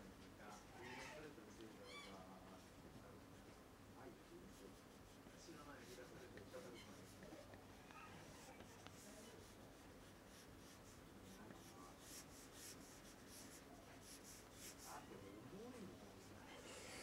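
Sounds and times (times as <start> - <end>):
pencil scratching on paper: 4.3 - 16.4.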